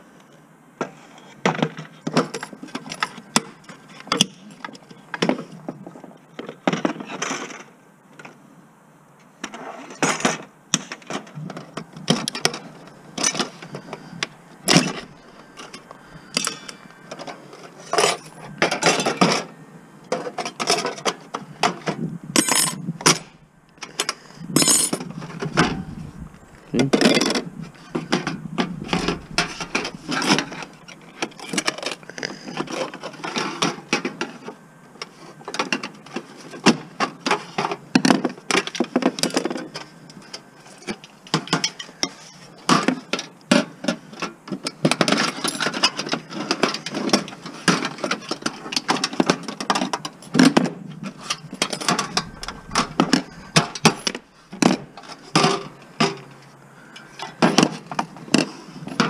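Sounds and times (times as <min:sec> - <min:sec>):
metal parts and tools clanking: 0:10.0 - 0:19.5, 0:20.1 - 0:34.2, 0:44.8 - 0:56.4.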